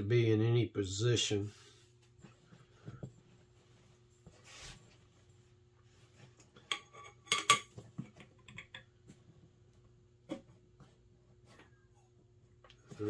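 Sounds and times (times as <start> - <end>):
soft rustle: 1.5 - 6.6.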